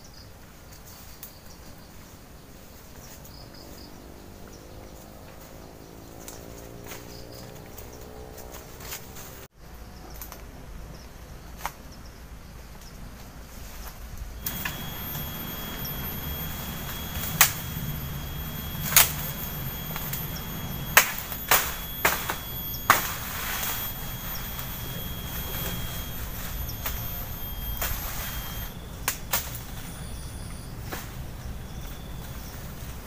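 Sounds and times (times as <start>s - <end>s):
brush being cleared: 13.7s - 29.9s.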